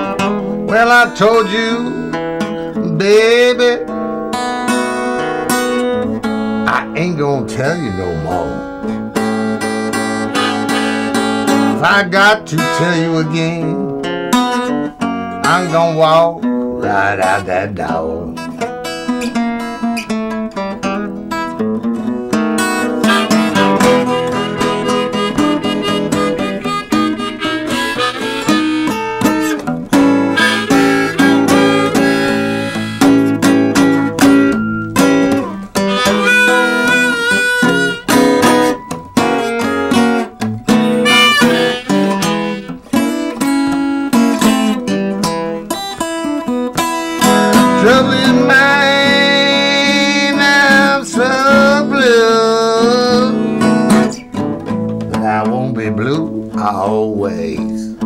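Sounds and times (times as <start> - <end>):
acoustic guitar strumming: 0.0 - 58.0
harmonica playing: 3.4 - 13.6, 22.6 - 54.3.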